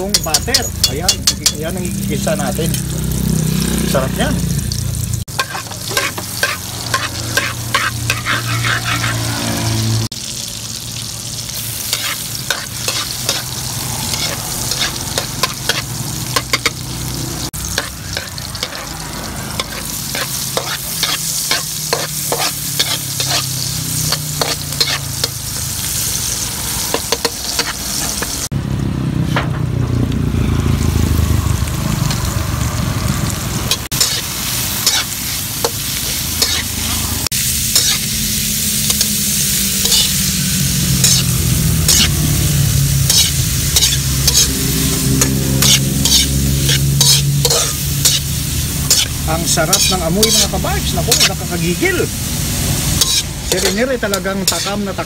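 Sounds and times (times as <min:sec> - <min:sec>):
spatula scraping pan: 0:00.0 - 0:01.8, 0:05.3 - 0:09.6, 0:11.9 - 0:16.8, 0:17.6 - 0:25.7, 0:33.8 - 0:37.1, 0:37.8 - 0:38.1, 0:39.8 - 0:40.2, 0:41.0 - 0:42.2, 0:43.0 - 0:51.4, 0:52.9 - 0:55.0
food sizzling in a wok: 0:00.0 - 0:55.0.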